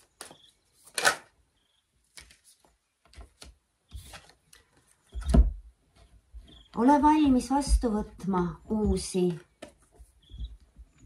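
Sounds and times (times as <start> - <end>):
cards shuffling and flicking: 0.0 - 1.3, 2.1 - 5.0.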